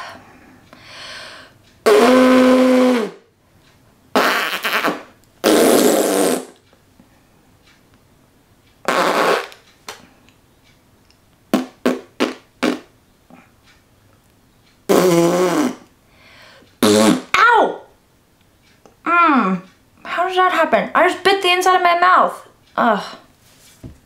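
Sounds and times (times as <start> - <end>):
fake fart noises with mouth: 1.8 - 3.3, 4.1 - 6.6, 8.8 - 9.6, 11.5 - 12.9, 14.9 - 15.9, 16.8 - 17.5.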